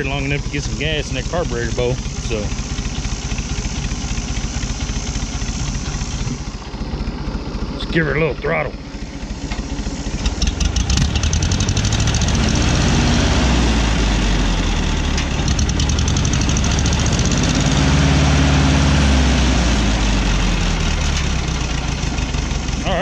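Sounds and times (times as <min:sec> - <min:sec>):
tractor engine running: 0:00.0 - 0:23.0.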